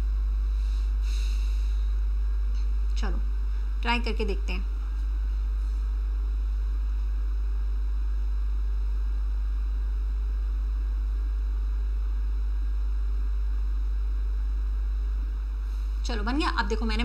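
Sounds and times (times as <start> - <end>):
faint hiss: 0.0 - 2.8
low electrical hum: 0.0 - 17.0.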